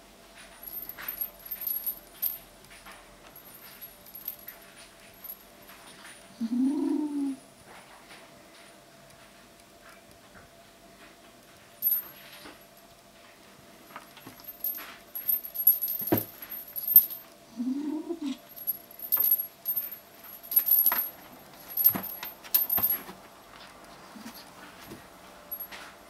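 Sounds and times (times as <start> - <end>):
kitten tussling with toy: 18.4 - 23.2.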